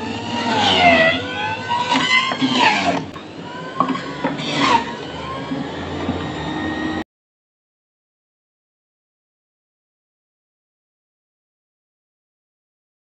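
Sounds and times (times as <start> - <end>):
blender motor whining: 0.0 - 7.0.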